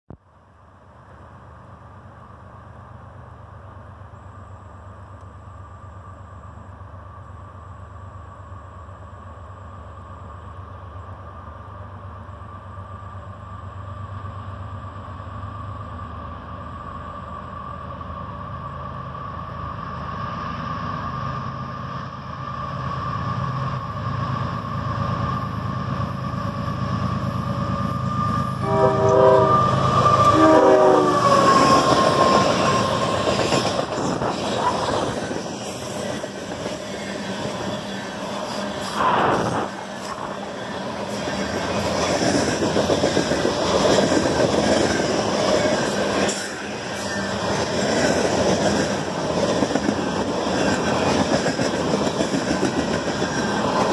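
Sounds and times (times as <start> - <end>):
high locomotive whine: 0.1 - 53.9
diesel locomotive rumble: 0.3 - 53.9
train horn toots: 28.1 - 33.0
train wheels clattering: 39.9 - 53.9.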